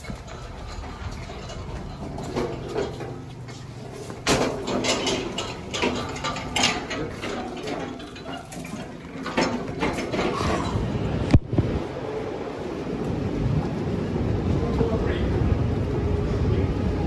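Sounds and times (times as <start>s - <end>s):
footsteps: 0.0s - 10.8s
metal cart clattering on concrete: 0.0s - 10.9s.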